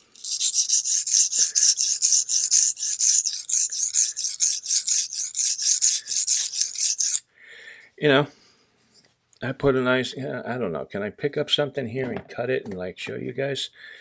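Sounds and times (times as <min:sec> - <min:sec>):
knife scraping on whetstone: 0:00.0 - 0:07.2.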